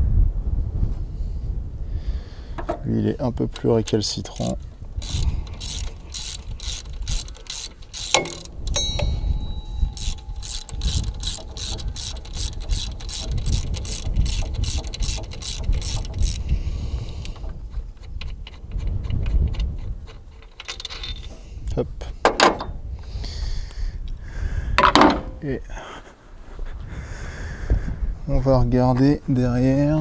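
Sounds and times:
ratchet wrench clicking: 0:04.3 - 0:21.3.

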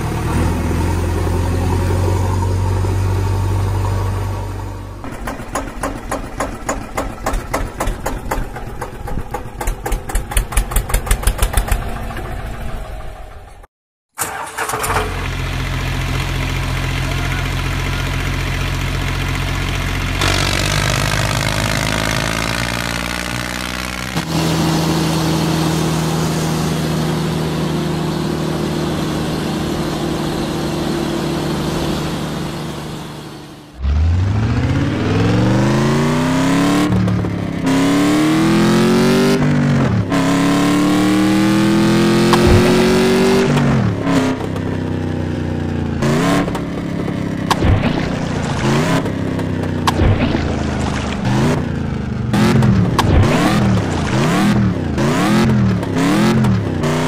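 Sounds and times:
tractor engine chugging: 0:05.0 - 0:13.6
car engine revving: 0:15.2 - 0:57.0.

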